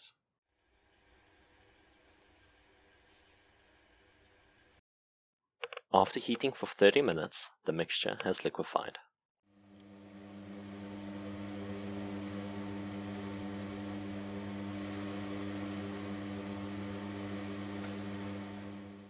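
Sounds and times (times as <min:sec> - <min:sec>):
heating mantle humming: 0:09.6 - 0:19.0.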